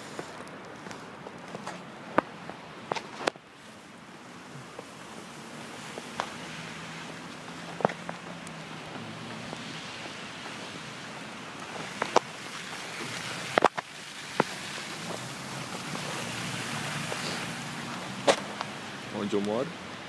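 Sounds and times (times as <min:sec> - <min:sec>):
car traffic hissing on slush: 0:00.0 - 0:01.9, 0:03.6 - 0:20.0.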